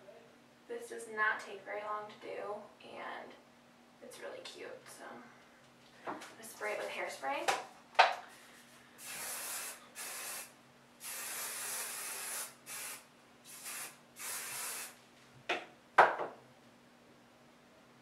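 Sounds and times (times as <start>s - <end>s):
hairspray hissing bursts: 9.0s - 15.0s.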